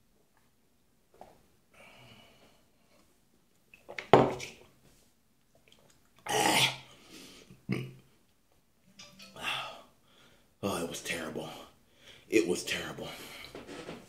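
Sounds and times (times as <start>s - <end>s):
man's disgusted vocal outbursts: 6.2s - 6.9s.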